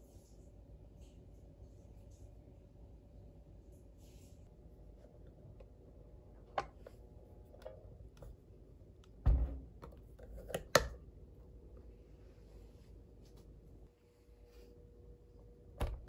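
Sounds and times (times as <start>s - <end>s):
faint steady hum: 0.0s - 16.0s
waffle maker lid thump: 9.3s - 9.9s.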